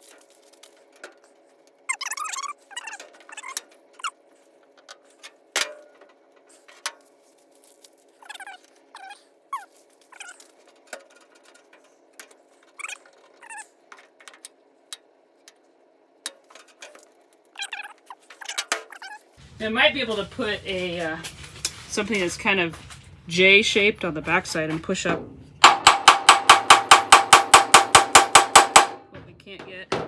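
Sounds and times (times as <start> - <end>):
loud knock on metal door: 25.6 - 30.0.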